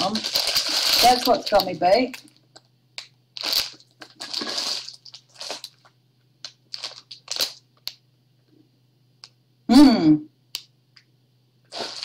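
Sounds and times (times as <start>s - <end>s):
plastic packaging crinkling: 0.0s - 2.6s, 3.4s - 7.9s, 11.7s - 12.0s.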